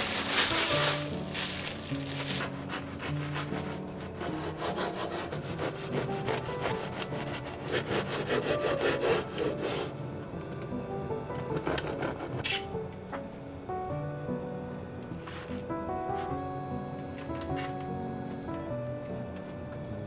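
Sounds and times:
knife sawing through crusty bread: 0.8 - 10.0, 11.6 - 12.6.

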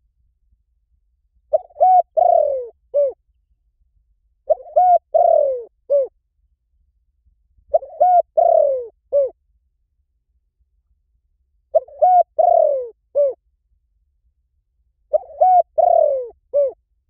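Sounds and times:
dove cooing: 1.5 - 3.2, 4.5 - 6.1, 7.7 - 9.4, 11.7 - 13.4, 15.1 - 16.8.

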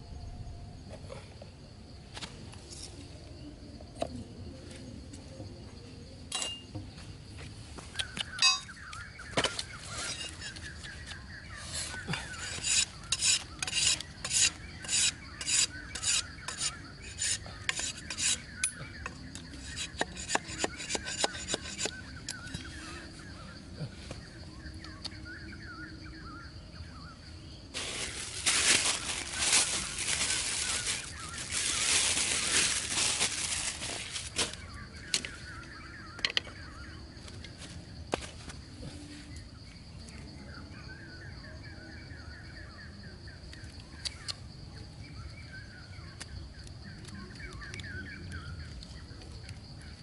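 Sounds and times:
insect hum: 0.0 - 50.0
knife scraping a stick: 9.7 - 10.9, 11.5 - 22.8.

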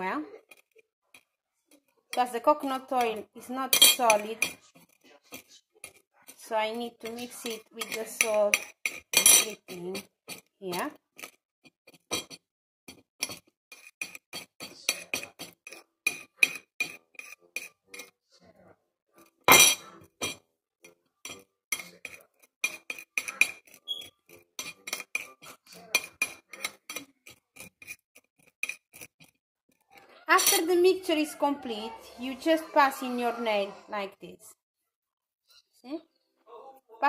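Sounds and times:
spoon clinking against plate: 2.9 - 4.7, 7.0 - 18.2, 19.5 - 29.3, 30.4 - 30.8.

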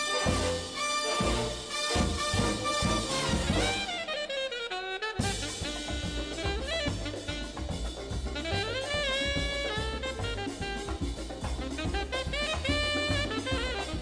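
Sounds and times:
drum kit: 0.0 - 4.5, 5.1 - 14.0
saxophone and brass melody: 0.0 - 14.0.

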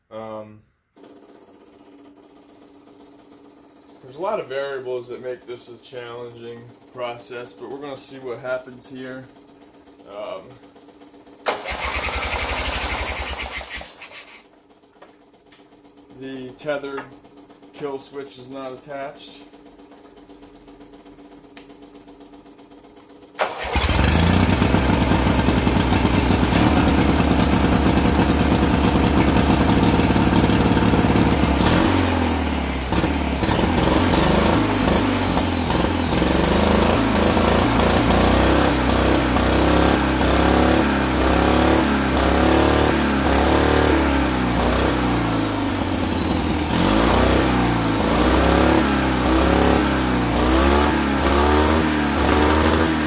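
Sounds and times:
engine starting and revving: 11.4 - 14.5, 23.3 - 53.0.

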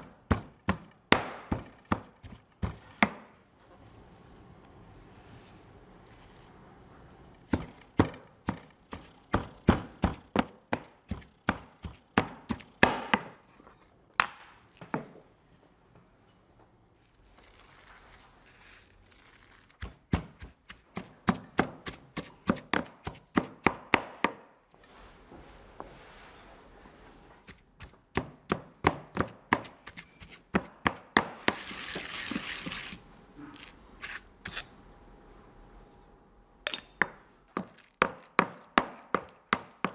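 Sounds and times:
stone pestle knocking in mortar: 36.7 - 39.9.

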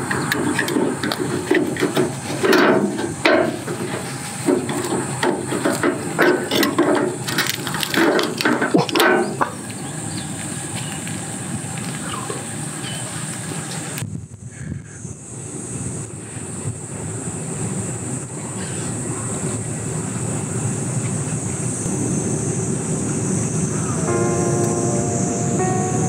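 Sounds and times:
steady hiss: 14.6 - 26.0.

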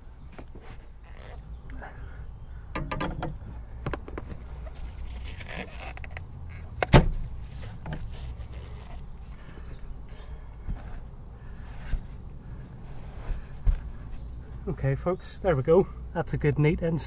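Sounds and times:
cylinder clicking against metal bracket: 2.7 - 4.0.

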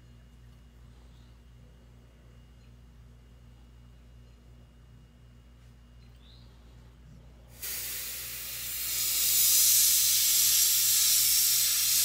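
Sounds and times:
airbrush spraying hiss: 7.5 - 12.0.

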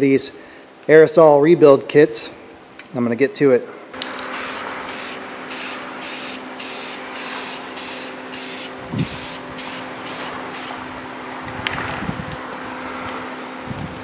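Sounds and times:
spray paint can hissing: 4.3 - 10.8.

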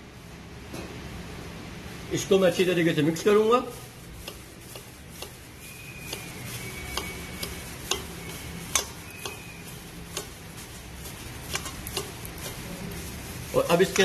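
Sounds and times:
gloved fingers tapping steel bowl: 4.2 - 5.4, 6.9 - 9.5.

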